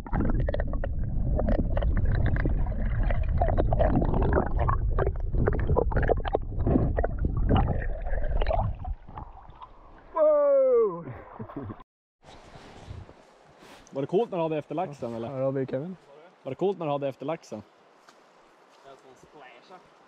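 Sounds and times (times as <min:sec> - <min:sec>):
muffled underwater rumble: 0:00.0 - 0:09.3
water sloshing and gurgling: 0:00.0 - 0:10.2
water splashes: 0:00.0 - 0:10.2.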